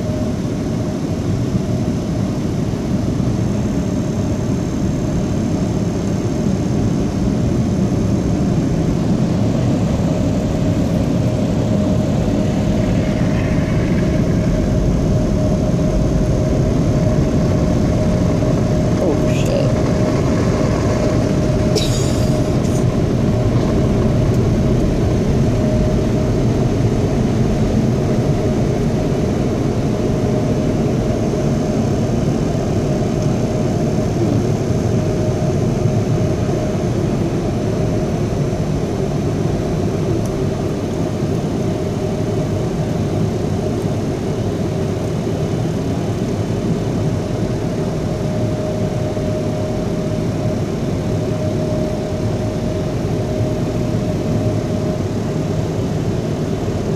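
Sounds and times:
faint steady whine: 0:00.0 - 0:56.9
car wash dryer blowers rushing: 0:08.3 - 0:32.9.

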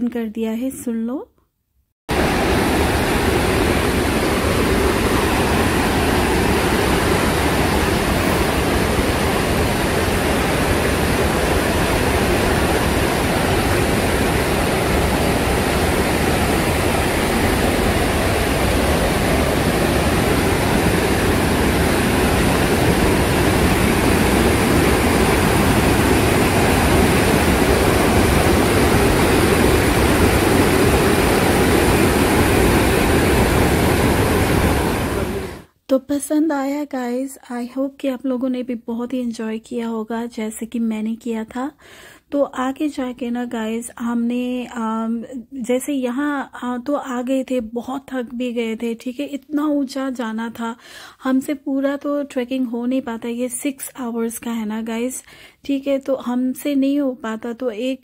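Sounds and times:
stream rushing over rocks: 0:02.1 - 0:35.7.

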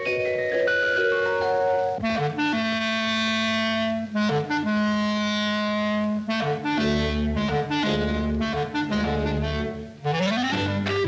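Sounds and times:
clarinet-like woodwind held notes: 0:00.0 - 0:11.0
bass and brass chords: 0:00.2 - 0:11.0.

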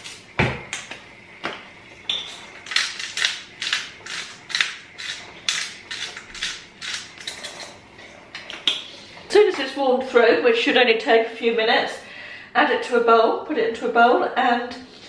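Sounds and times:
spice mill grinding: 0:02.6 - 0:07.7.

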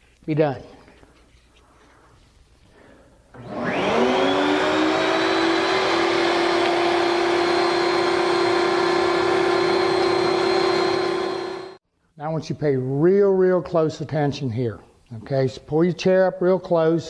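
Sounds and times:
router whining at high speed: 0:03.4 - 0:11.8.

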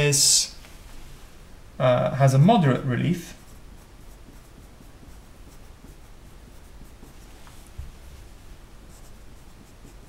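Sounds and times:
pencil scratching on paper: 0:03.3 - 0:10.0.

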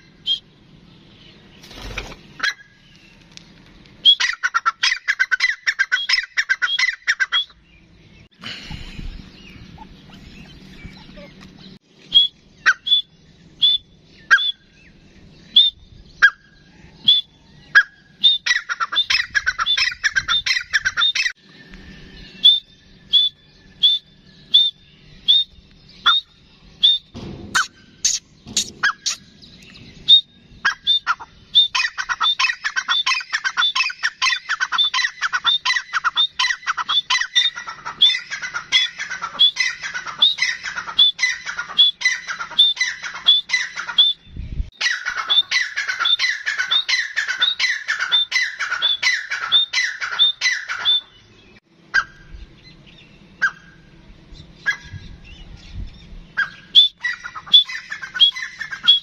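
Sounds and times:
bird calling rapid notes: 0:04.0 - 0:07.6, 0:12.1 - 0:14.7, 0:17.0 - 0:21.4, 0:22.3 - 0:29.4, 0:30.0 - 0:51.2, 0:56.4 - 0:59.0.

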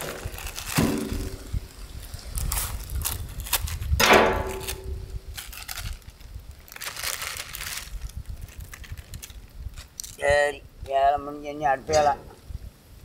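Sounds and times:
footsteps crunching dry vegetation: 0:00.0 - 0:10.2.

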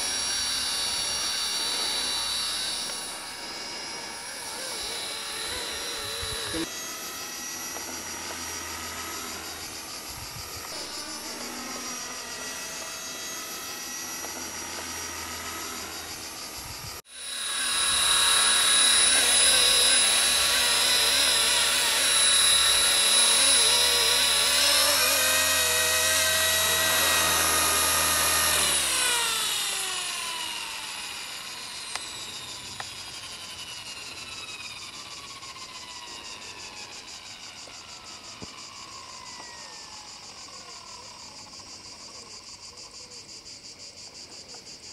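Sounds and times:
electric helicopter rotor whine: 0:00.0 - 0:44.9.

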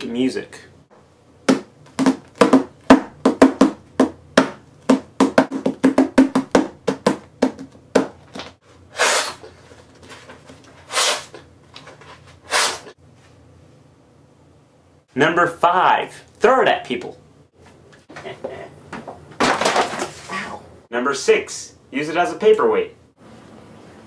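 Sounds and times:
hands drumming on a book: 0:01.5 - 0:08.2.

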